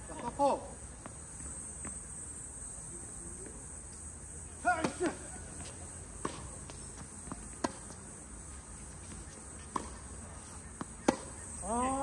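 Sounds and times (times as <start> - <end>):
tennis ball knocks: 6.2 - 8.0, 9.7 - 10.0, 10.7 - 11.4.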